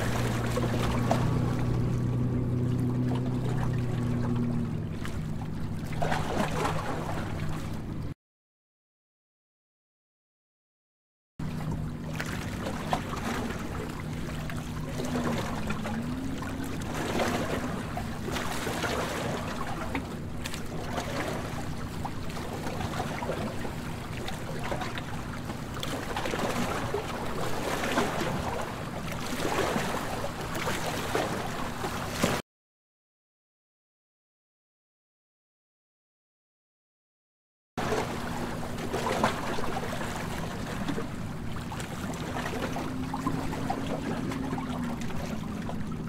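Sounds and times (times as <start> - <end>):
water noise: 0.0 - 8.2, 11.4 - 32.4, 37.8 - 46.0
steady low hum: 11.4 - 29.2.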